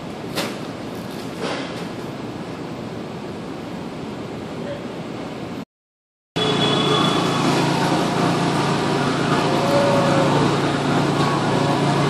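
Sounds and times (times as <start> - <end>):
brief machine whine: 6.4 - 12.0
warehouse machinery din: 6.4 - 12.0.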